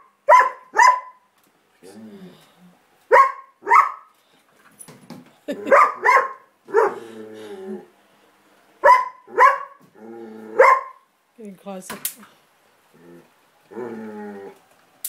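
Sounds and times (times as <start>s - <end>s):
dog barking: 0.3s - 1.2s, 3.1s - 4.1s, 5.6s - 7.0s, 8.8s - 9.8s, 10.6s - 11.0s.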